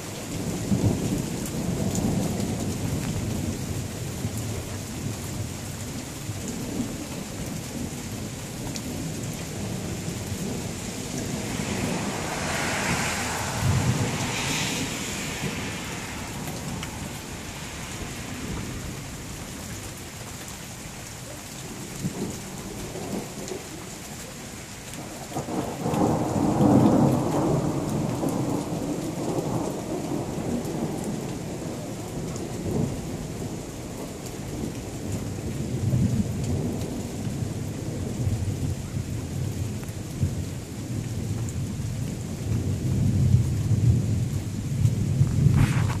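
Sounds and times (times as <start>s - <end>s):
steady rain: 0.0s - 46.0s
thunder rumbling: 7.7s - 21.0s, 25.0s - 33.7s.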